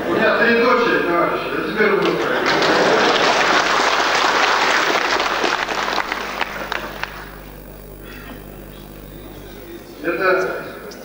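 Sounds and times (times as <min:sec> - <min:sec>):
audience applauding: 0:02.2 - 0:07.5.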